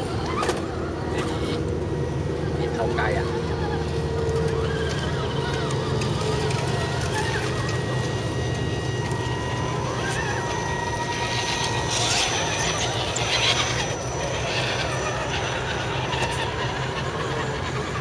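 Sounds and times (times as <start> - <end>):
electric motors whining: 0.0 - 18.0
steady low hum: 0.0 - 18.0
tyres scrabbling on dirt and rock: 3.9 - 13.9.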